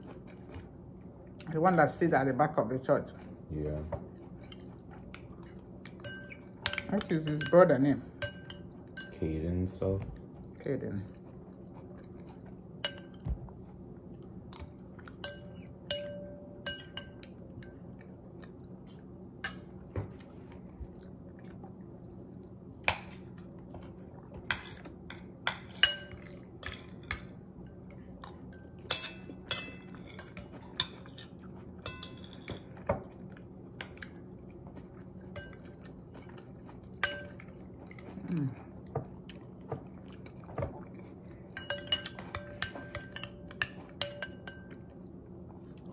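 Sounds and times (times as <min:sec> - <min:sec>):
low steady hum: 0:00.0 - 0:45.9
cutlery clinking on plate: 0:15.1 - 0:17.4, 0:24.5 - 0:33.0, 0:41.6 - 0:44.8.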